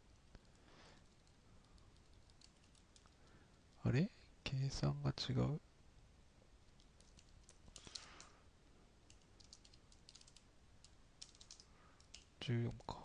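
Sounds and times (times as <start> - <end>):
faint keyboard typing: 0.1 - 4.0, 6.6 - 8.4, 9.0 - 13.0.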